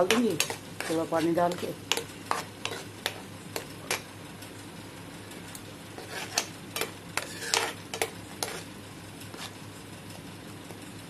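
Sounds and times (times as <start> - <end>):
spoon scraping a frying pan: 0.0 - 4.1, 5.9 - 8.7, 9.3 - 9.6
low sizzle of gravy: 0.0 - 11.0.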